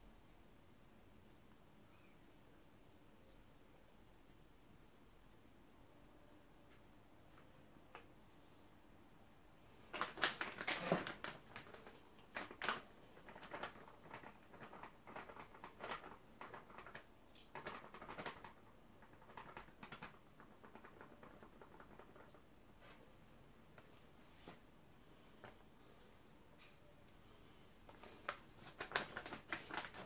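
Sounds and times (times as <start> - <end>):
plastic sachet crinkling: 9.9 - 22.4, 27.9 - 30.0.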